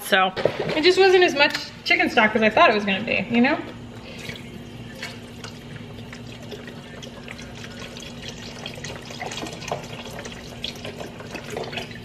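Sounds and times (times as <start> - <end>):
liquid pouring into pot: 4.1 - 12.0.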